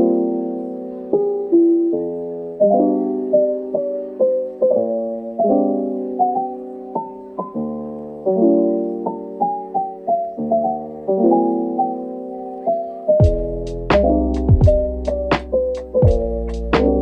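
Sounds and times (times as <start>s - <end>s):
solo piano music: 0.0s - 17.0s.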